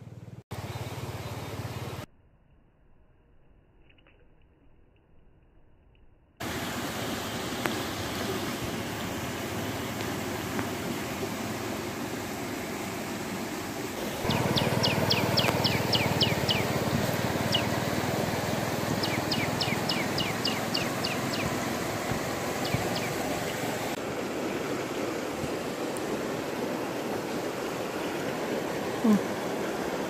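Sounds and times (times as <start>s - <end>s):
stream running over rocks: 6.4s - 30.0s.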